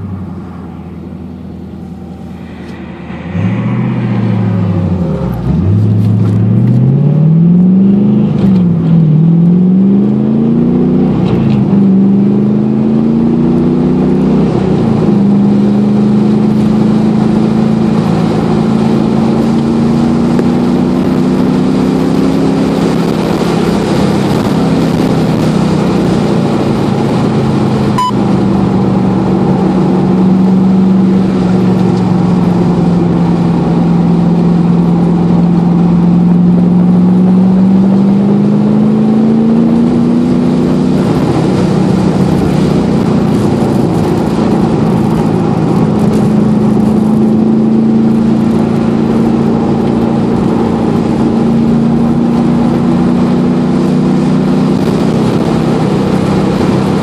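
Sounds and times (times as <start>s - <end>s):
car engine accelerating: 0.0s - 57.0s
wind noise: 1.7s - 7.2s, 14.4s - 57.0s.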